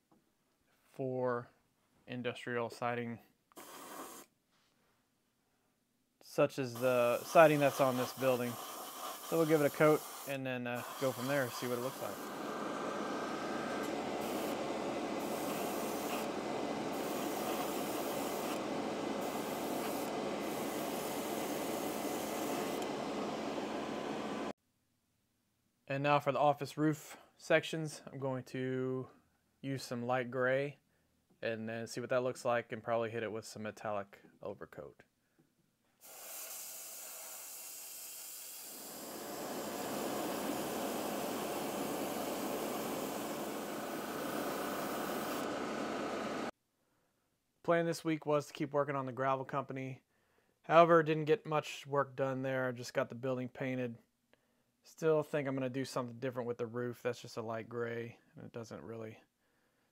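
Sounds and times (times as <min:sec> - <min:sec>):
airbrush spraying hiss: 0:03.6 - 0:04.3, 0:06.7 - 0:22.9, 0:36.0 - 0:46.5
exhaust fan noise: 0:10.8 - 0:24.5, 0:39.0 - 0:46.5
low machine whir: 0:10.9 - 0:24.5, 0:39.1 - 0:46.5.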